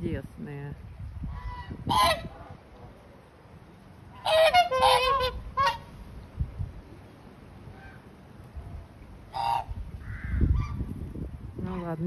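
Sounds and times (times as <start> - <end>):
swans honking: 1.4 - 3.1, 4.0 - 6.0, 9.2 - 9.8.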